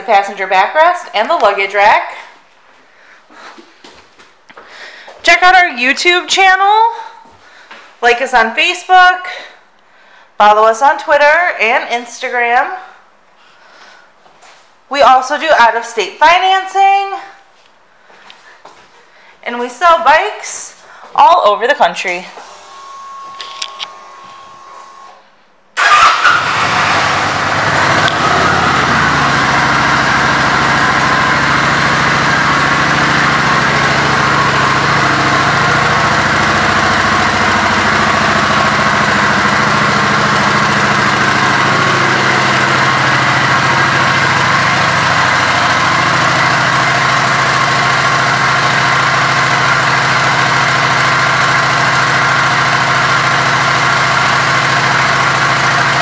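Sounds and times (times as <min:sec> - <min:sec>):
motorcycle engine starting and idling: 0:25.8 - 0:56.0.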